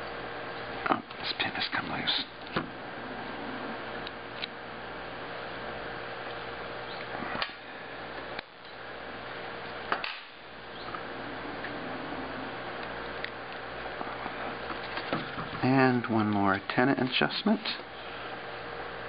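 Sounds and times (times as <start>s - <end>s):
low hum: 0.0s - 17.0s.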